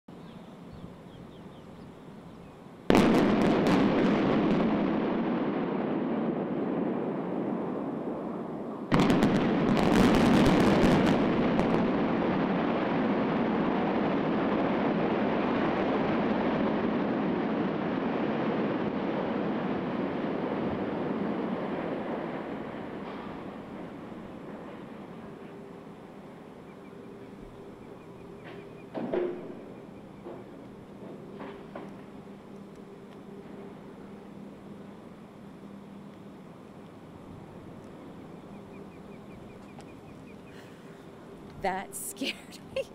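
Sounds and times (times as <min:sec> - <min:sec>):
demolition charge blasts: 0:02.9 - 0:25.4
rumble of collapsing building: 0:02.9 - 0:26.2.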